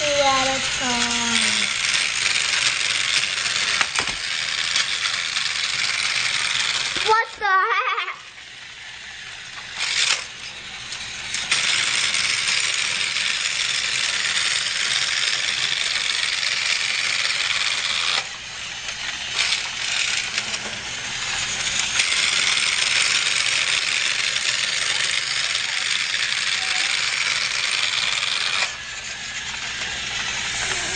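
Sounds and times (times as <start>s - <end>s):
toy train rattling whirr: 0.0s - 30.9s.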